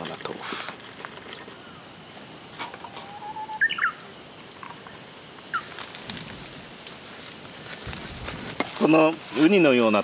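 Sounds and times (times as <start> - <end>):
songbird whistling and chirping: 2.9 - 4.0.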